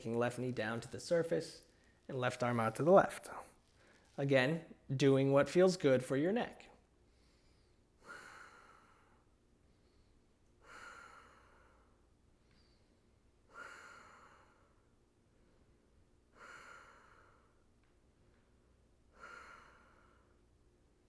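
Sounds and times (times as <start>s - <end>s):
man breathing slowly: 7.0s - 17.7s, 19.1s - 20.5s.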